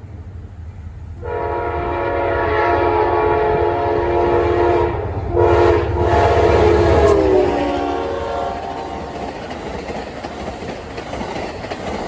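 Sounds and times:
train rumbling: 0.0 - 12.0
train horn blasts: 1.2 - 9.5.

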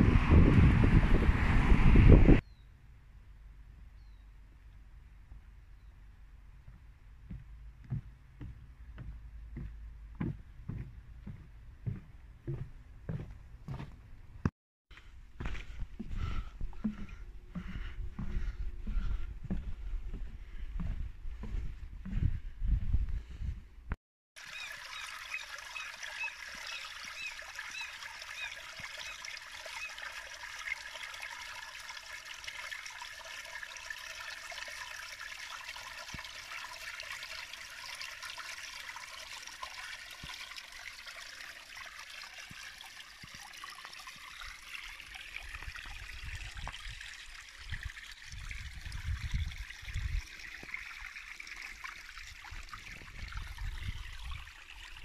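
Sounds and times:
brook trickling over rocks: 24.4 - 55.0.

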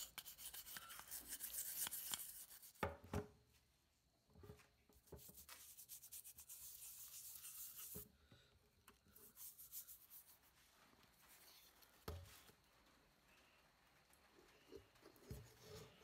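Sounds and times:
toothbrush scrubbing metal plate: 0.0 - 2.8, 5.1 - 8.0.

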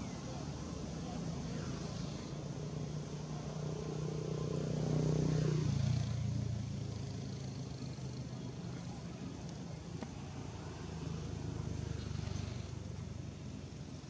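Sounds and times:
vehicle engine passing by: 1.0 - 9.0.

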